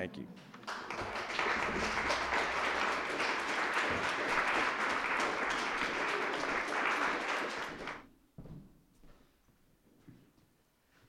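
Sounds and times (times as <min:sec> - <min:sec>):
audience applauding: 0:00.6 - 0:08.1.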